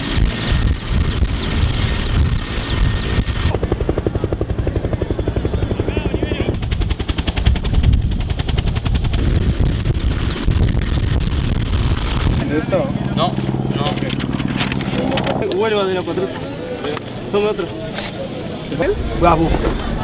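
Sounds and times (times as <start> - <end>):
helicopter rotor chop: 0.0 - 20.0.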